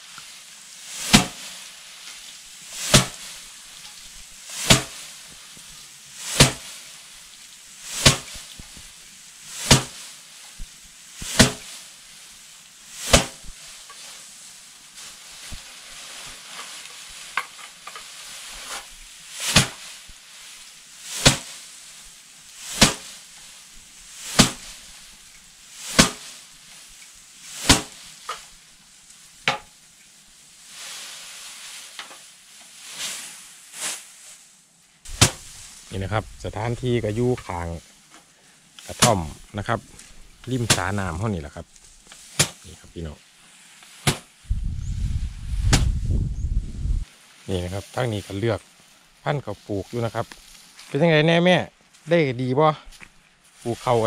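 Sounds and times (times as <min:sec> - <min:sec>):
grain and straw rattling: 0:00.0 - 0:54.0
stalks slapped against wooden board: 0:26.0 - 0:26.2, 0:44.0 - 0:44.2.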